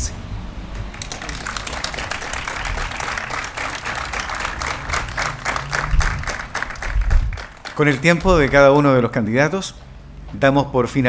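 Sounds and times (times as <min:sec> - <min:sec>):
audience applauding: 0:00.8 - 0:08.9.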